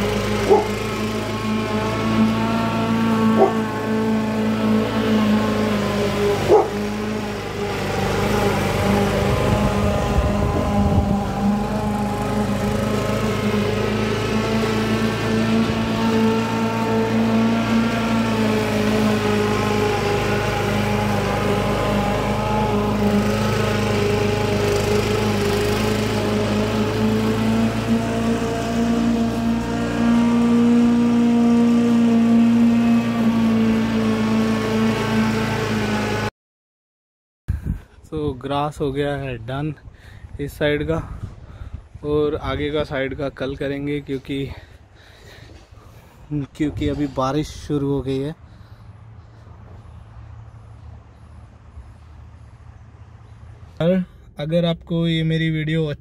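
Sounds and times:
lawn mower engine running: 0.0s - 36.3s, 43.8s - 47.7s.

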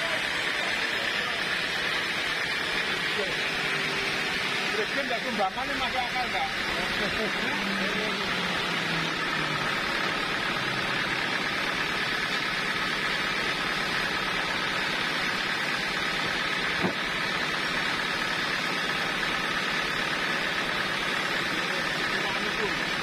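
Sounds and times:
band sawmill running idle: 0.0s - 23.0s.

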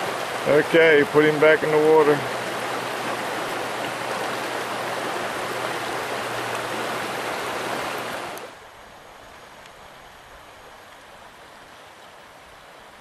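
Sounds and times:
water rushing over creek riffle: 0.0s - 13.0s.

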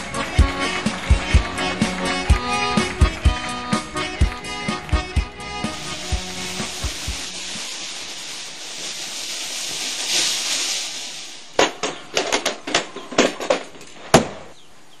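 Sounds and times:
firecrackers banging: 0.0s - 14.5s
fuse hissing: 5.4s - 12.1s.

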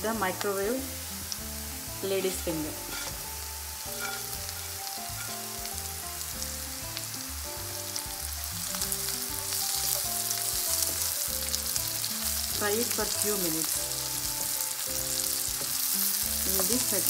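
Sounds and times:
vegetables sizzling in hot oil: 0.0s - 17.0s
wooden spoon scraping a pan: 3.9s - 5.7s.

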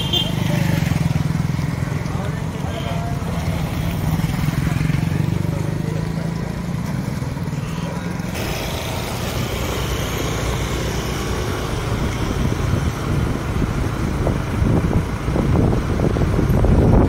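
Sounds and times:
motorcycle engine running: 0.0s - 17.0s
wind on microphone: 11.4s - 17.0s.

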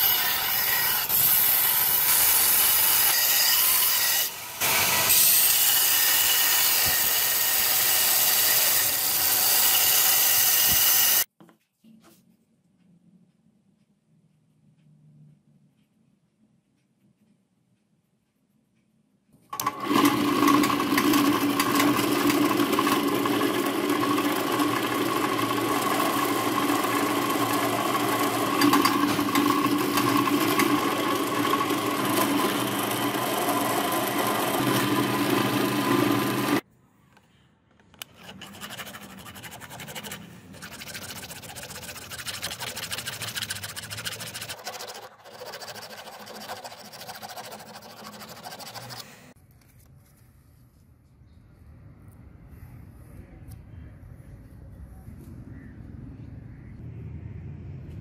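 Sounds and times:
drill press boring metal: 19.6s - 36.6s
hand file scraping brass: 38.1s - 49.3s.

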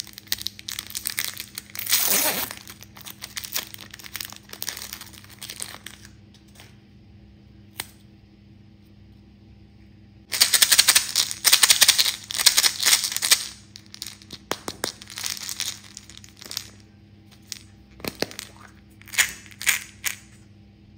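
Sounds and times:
plastic toy ball crackling: 0.0s - 6.0s, 10.3s - 16.8s, 17.4s - 20.3s.

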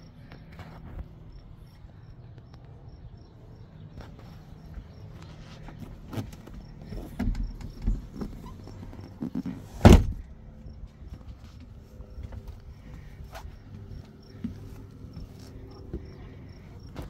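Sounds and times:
soft knocks and bumps on hatch: 5.7s - 9.2s
hatch closing with loud thud: 9.8s - 10.3s.

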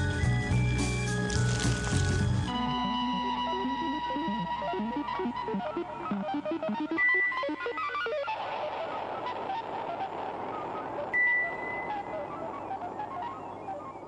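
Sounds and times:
tinkling background music: 0.0s - 2.6s.

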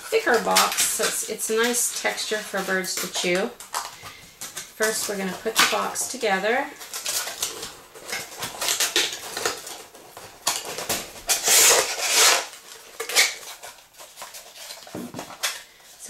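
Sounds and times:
cardboard scraping on cardboard: 7.0s - 15.2s.

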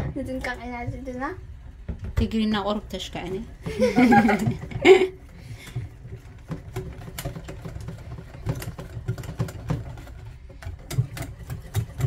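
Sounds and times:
utensil clicking in a pot: 6.7s - 12.0s.

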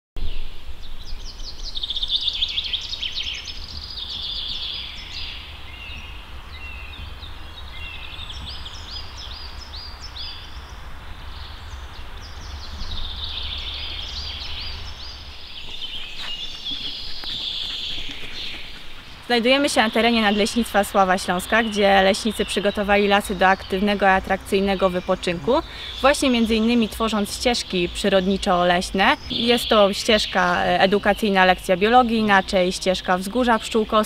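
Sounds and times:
songbirds chirping and trilling: 0.2s - 34.0s.

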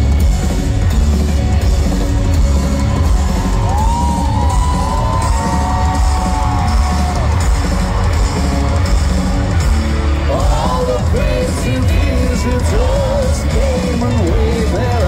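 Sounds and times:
live rock band: 0.0s - 15.0s
person singing: 10.3s - 15.0s.

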